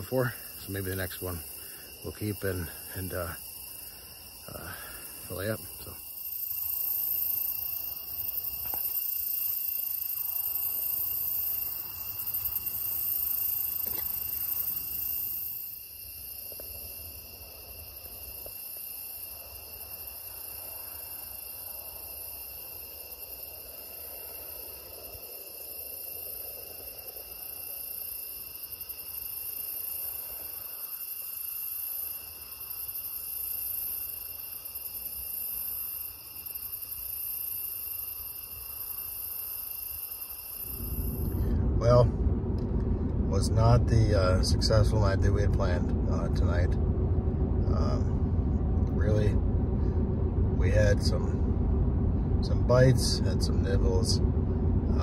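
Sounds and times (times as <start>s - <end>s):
crickets and insects trilling: 0.0s - 55.0s.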